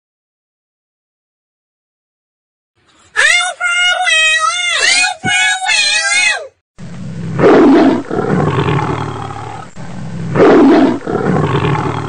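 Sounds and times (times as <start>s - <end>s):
tiger roaring: 6.8s - 12.0s.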